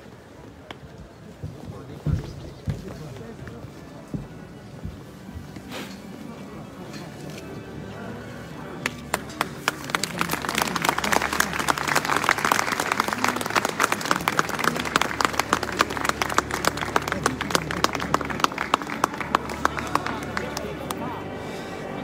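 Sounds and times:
crowd applauding: 0:08.8 - 0:21.3.

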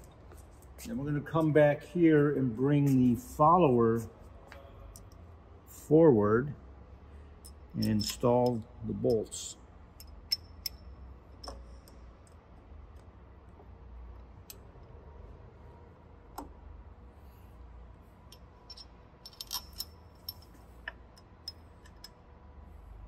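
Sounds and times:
low steady hum: 0:00.0 - 0:23.0
metallic clicks of bolts: 0:07.4 - 0:13.1, 0:18.3 - 0:22.3.

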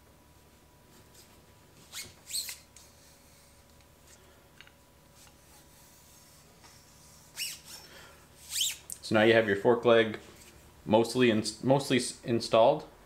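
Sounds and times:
hands squeaking on chrome tube: 0:01.9 - 0:02.7, 0:07.3 - 0:08.9.

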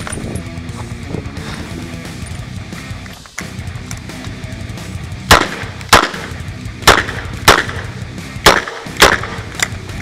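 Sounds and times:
revolver gunshots: 0:05.2 - 0:09.6.

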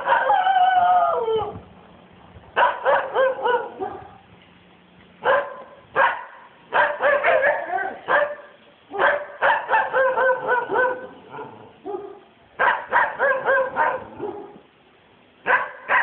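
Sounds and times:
dogs barking: 0:00.0 - 0:00.6, 0:02.6 - 0:04.2, 0:05.2 - 0:14.7, 0:15.4 - 0:16.0.

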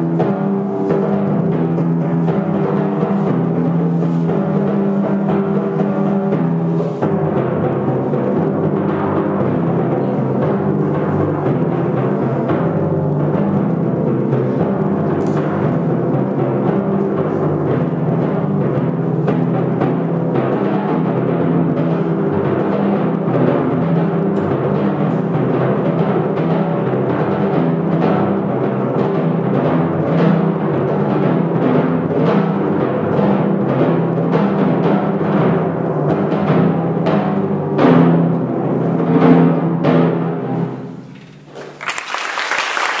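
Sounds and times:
timpani strokes and rolls: 0:00.0 - 0:41.8
applause: 0:41.5 - 0:43.0.

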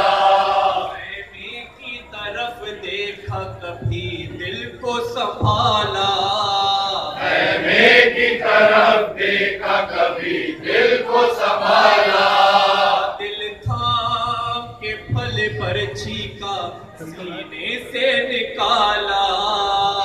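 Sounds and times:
men chanting a lament: 0:00.0 - 0:20.0.

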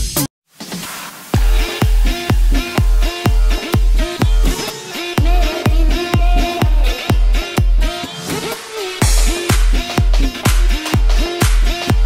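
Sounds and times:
upbeat dance music: 0:00.0 - 0:12.0
heavy kick drum: 0:01.4 - 0:08.0, 0:09.0 - 0:12.0.

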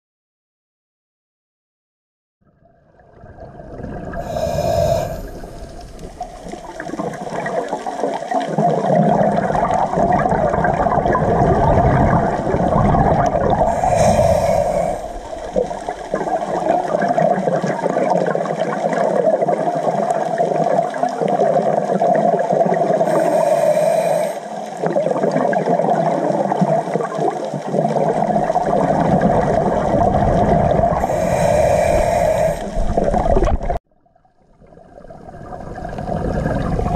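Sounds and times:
bubbling rushing water: 0:02.6 - 0:23.8, 0:24.4 - 0:36.9
diver breathing through regulator: 0:04.1 - 0:07.4, 0:12.0 - 0:17.3, 0:23.0 - 0:24.8, 0:28.2 - 0:33.8.

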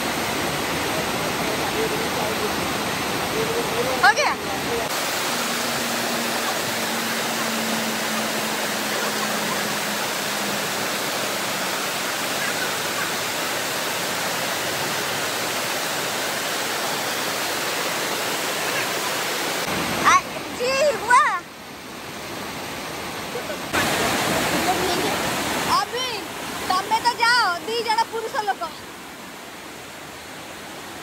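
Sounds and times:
water rushing over rocks: 0:00.0 - 0:31.0.

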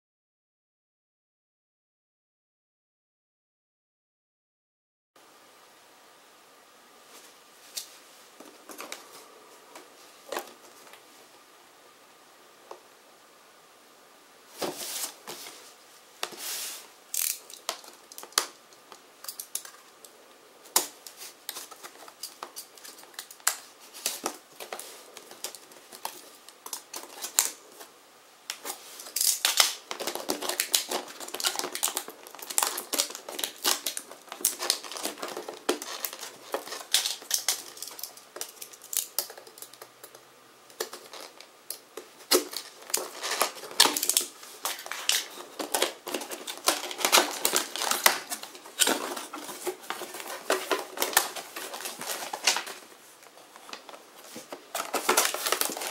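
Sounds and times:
cardboard box handled and rustling: 0:14.6 - 0:16.8, 0:42.4 - 0:55.9.

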